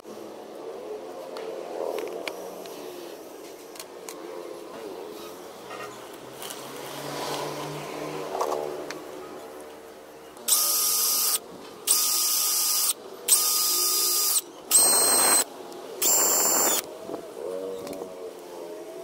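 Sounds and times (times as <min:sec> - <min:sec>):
cordless drill boring plastic pipe: 0:10.5 - 0:15.4, 0:16.0 - 0:16.8.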